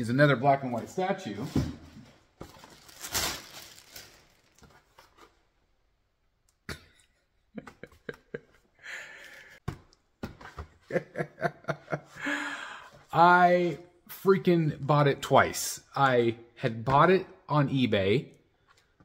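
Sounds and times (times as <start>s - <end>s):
person laughing: 7.6s - 9.6s, 10.8s - 12.6s.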